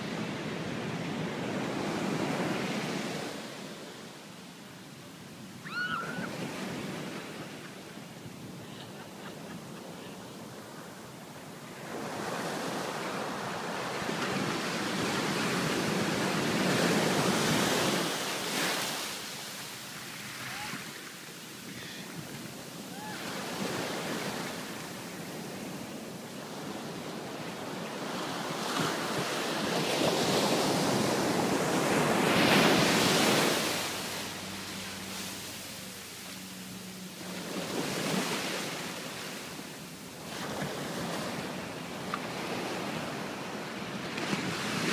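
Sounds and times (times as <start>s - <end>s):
ocean surf breaking on sand: 0.0s - 44.9s.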